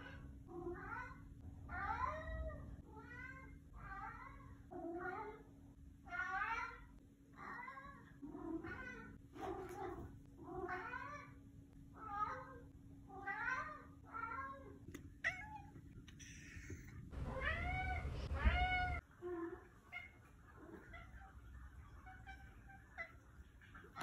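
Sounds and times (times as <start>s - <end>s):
cat meowing: 15.2s - 19.0s.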